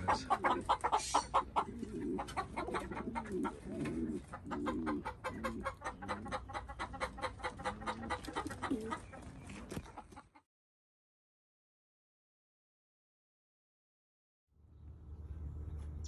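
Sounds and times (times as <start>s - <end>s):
birds cooing: 0.0s - 10.3s.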